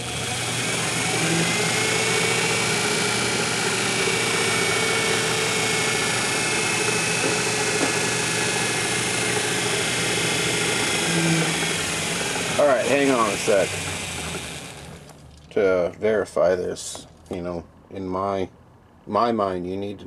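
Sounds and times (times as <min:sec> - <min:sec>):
metal lathe whining: 0:00.0 - 0:15.2.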